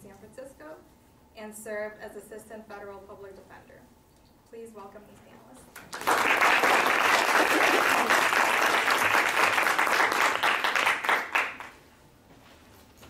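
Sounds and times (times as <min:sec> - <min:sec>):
audience applauding: 0:05.8 - 0:11.8.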